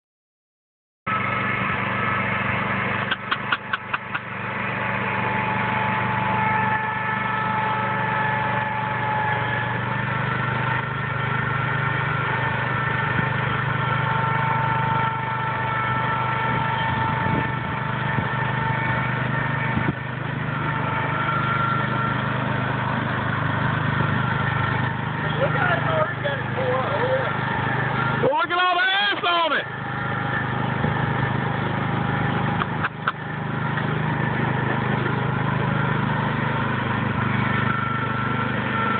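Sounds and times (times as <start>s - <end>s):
garden tractor engine running: 1.1s - 38.9s
sharp clicks: 3.0s - 4.3s.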